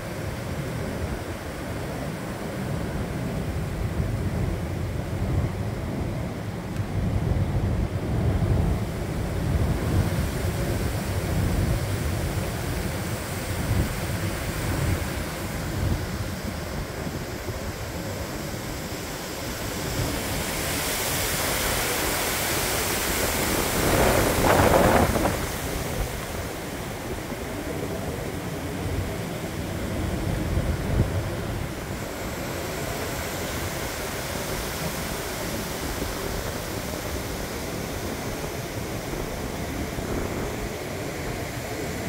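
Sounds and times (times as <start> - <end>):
gusty wind through trees: 0.0 - 42.0
wind buffeting microphone: 0.0 - 42.0
leaves hissing: 14.4 - 27.2.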